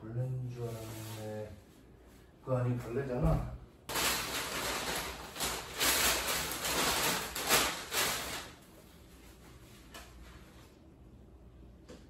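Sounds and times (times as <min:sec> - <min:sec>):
plastic sheeting rustling: 0:00.5 - 0:01.7, 0:03.9 - 0:10.8.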